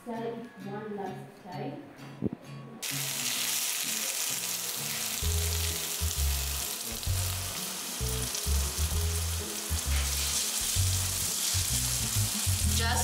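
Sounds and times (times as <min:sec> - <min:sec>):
meat sizzling in a pan: 0:02.8 - 0:13.0
background music with bass: 0:05.2 - 0:13.0.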